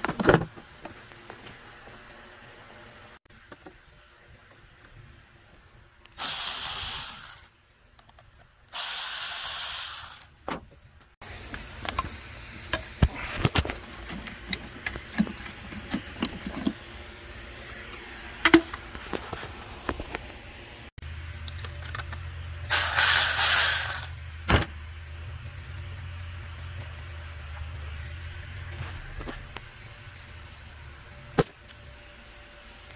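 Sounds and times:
electric ratchet whirring: 6.2s - 7.5s, 8.8s - 10.3s, 22.7s - 24.2s.

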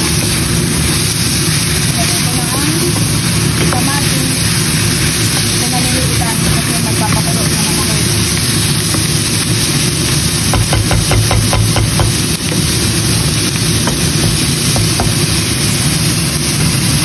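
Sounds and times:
food sizzling in a pan: 0.0s - 17.0s
steady low hum: 0.0s - 17.0s
spatula scraping and tapping pan: 10.0s - 12.8s.

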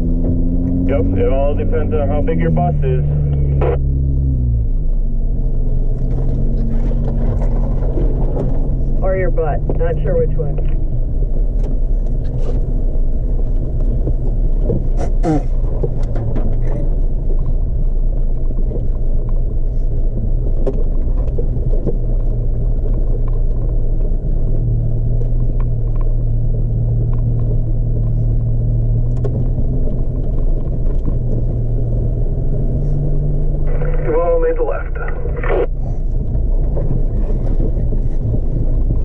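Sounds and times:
vehicle engine rumble: 0.0s - 39.0s.

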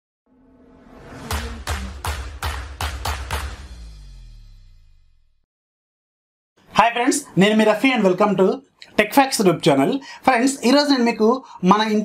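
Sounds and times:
heavy low bass: 0.9s - 5.4s
sharp percussive hits: 1.0s - 5.4s.

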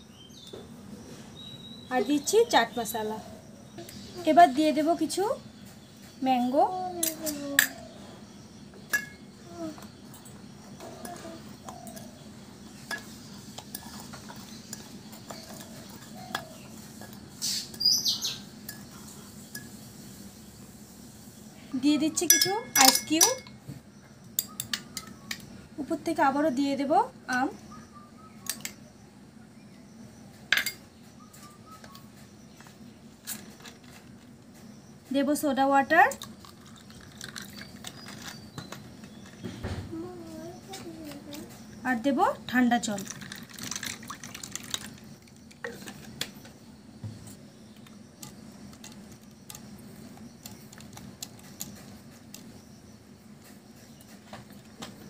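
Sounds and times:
spoon clinking against glass: 22.3s - 23.6s.

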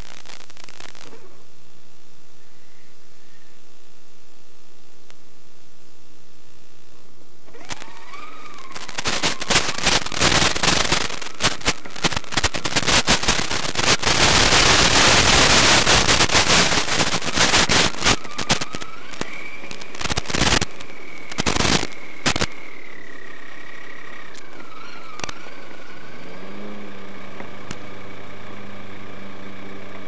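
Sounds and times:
crackling radio static: 0.0s - 26.5s, 27.2s - 28.9s
electric motor whine: 7.4s - 30.0s.

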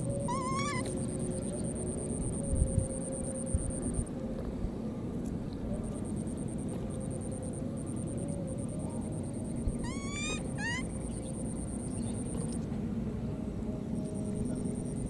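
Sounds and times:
baby monkey squealing: 0.3s - 0.9s, 9.8s - 11.0s.

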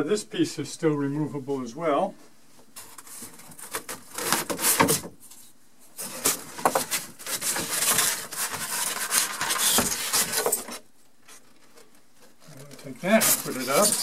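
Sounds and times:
foam board scraping on plywood: 6.0s - 10.6s, 13.0s - 14.0s.

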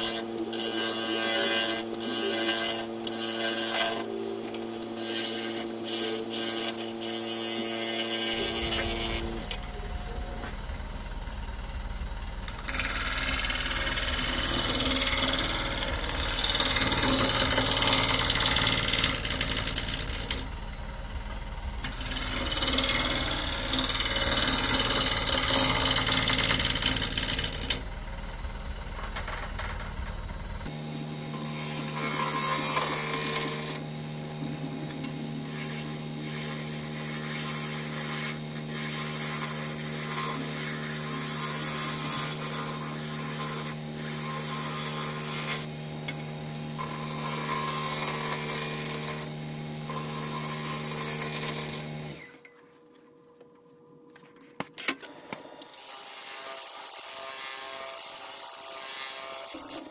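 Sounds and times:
wood lathe running: 0.0s - 52.3s
tool cutting wood on lathe: 0.0s - 52.4s
cordless drill sanding wood: 12.5s - 27.8s.

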